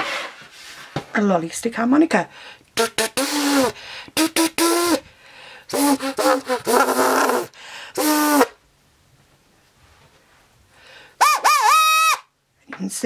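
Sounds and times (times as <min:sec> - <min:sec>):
buzzy harmonica honks bending in pitch: 0:02.8 - 0:05.0, 0:05.7 - 0:08.6.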